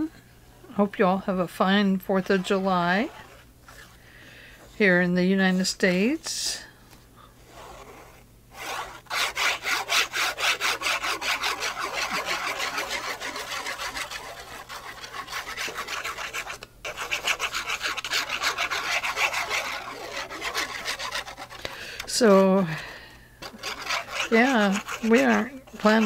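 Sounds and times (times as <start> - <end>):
glue applicator scrubbing paper: 7.5 - 22.6, 23.4 - 26.0.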